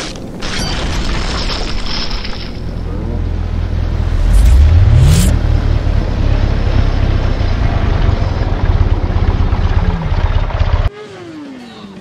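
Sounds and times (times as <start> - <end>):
motorcycle engine rumbling: 2.6 - 10.9.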